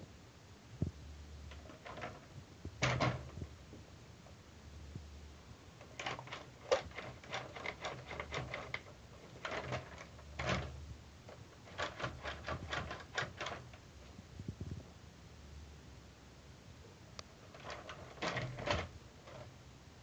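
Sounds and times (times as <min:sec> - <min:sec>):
plastic toy truck clicks and rattles: 0:01.5 - 0:03.4, 0:05.8 - 0:13.8, 0:17.4 - 0:19.5.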